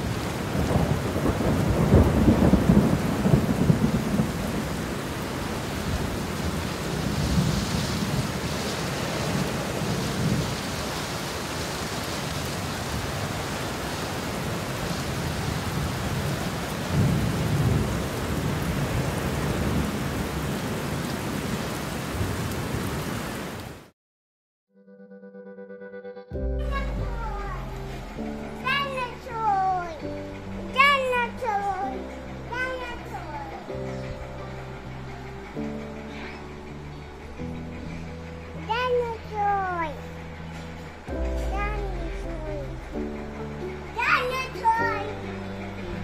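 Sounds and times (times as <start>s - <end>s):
low thunder rumbles: 0.0s - 23.0s, 26.4s - 38.6s
rain falling on foliage: 0.0s - 23.9s, 26.7s - 46.0s.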